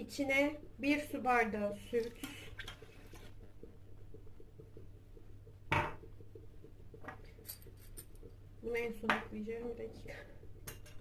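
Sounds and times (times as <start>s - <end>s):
milk pouring into pot: 0.0s - 8.6s
low steady hum: 0.0s - 11.0s.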